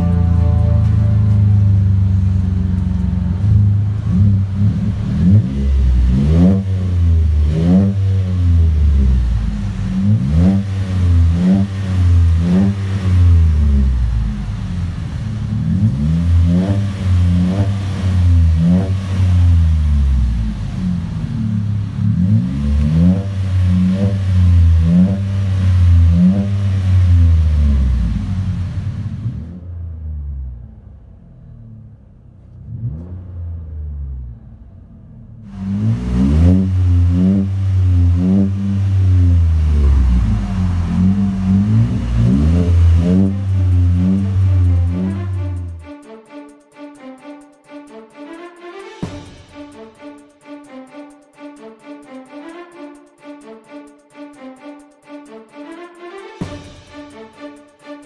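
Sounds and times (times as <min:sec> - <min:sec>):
truck engine revving: 0:00.0 - 0:46.0.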